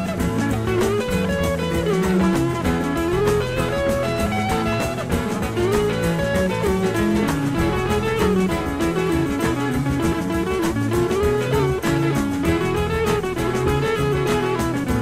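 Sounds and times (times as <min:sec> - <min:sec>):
guitar-led instrumental music: 0:00.0 - 0:15.0
steady drum beat: 0:00.0 - 0:15.0.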